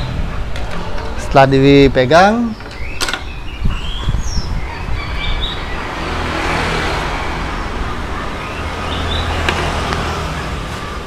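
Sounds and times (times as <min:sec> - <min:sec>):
bird chirps: 0:02.4 - 0:06.1, 0:07.8 - 0:11.0
vehicle passing: 0:03.8 - 0:11.0.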